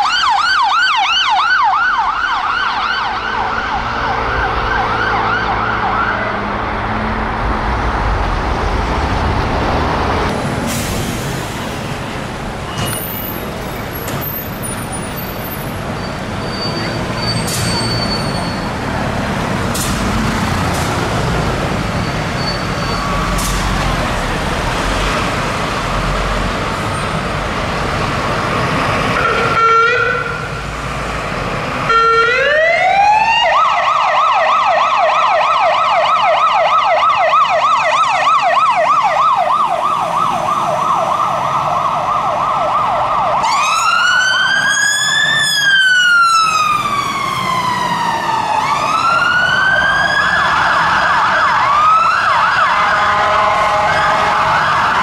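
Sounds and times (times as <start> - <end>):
second siren: 0.0 - 7.4, 31.8 - 55.0
engine and traffic noise: 0.0 - 55.0
fire engine siren: 0.0 - 55.0.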